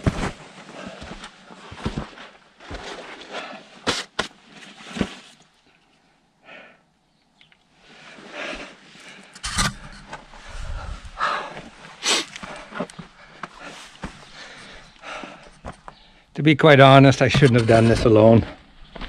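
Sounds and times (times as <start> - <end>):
scuffing on rock and sand: 10.2 - 16.0.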